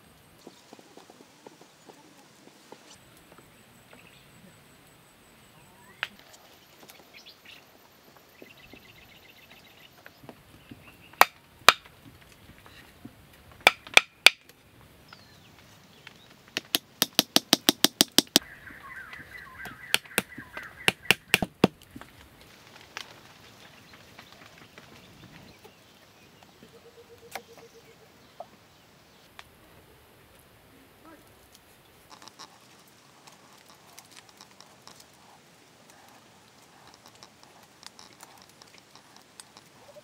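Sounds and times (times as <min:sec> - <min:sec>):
wooden knocks of stick driven: 0:16.6 - 0:18.4, 0:19.6 - 0:21.8.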